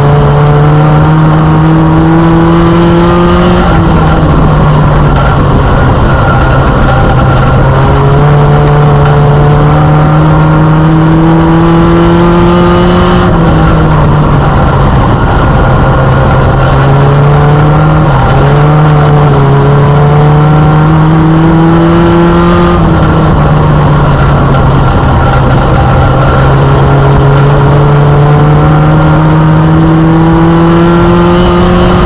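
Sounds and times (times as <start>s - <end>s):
race car engine revving: 0.0s - 32.0s.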